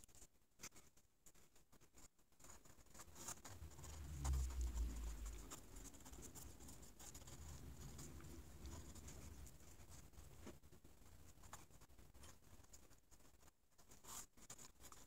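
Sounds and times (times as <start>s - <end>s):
pen scratching on paper: 1.9s - 10.0s
low rumble: 3.6s - 5.6s.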